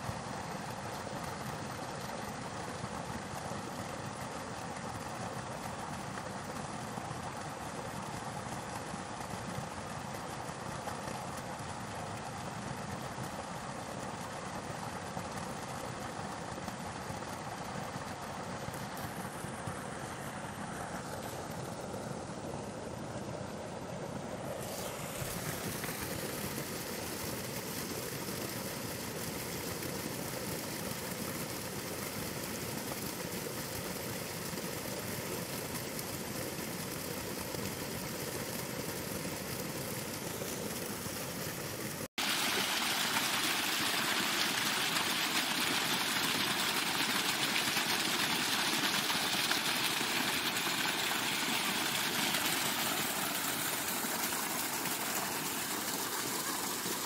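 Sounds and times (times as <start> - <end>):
water gushing from pipe: 0.0 - 23.5, 24.3 - 57.0
water rushing through channel: 24.3 - 57.0.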